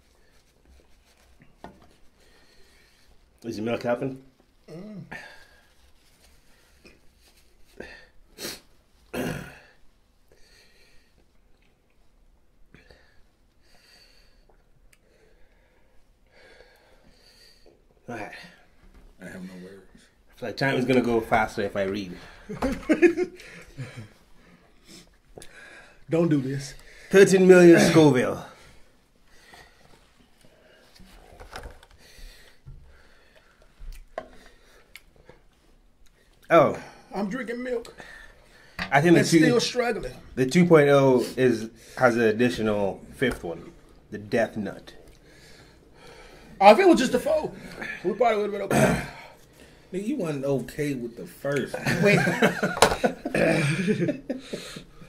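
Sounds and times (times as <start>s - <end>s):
soft rustles: 0.0s - 3.4s, 5.5s - 7.8s
man coughing and clearing throat: 9.1s - 9.8s, 48.6s - 49.4s, 51.7s - 54.8s.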